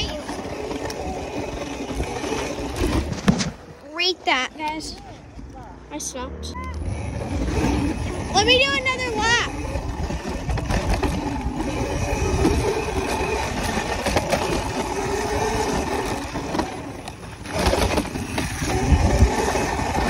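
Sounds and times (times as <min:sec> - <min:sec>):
dirt bike engine revving: 0:00.0 - 0:03.5, 0:06.4 - 0:20.0
wind buffeting microphone: 0:06.8 - 0:16.8, 0:17.6 - 0:20.0.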